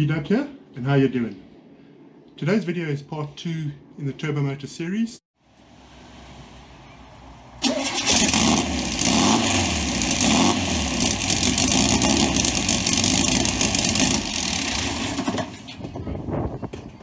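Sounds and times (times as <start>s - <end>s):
car engine starting and running: 5.6s - 15.8s.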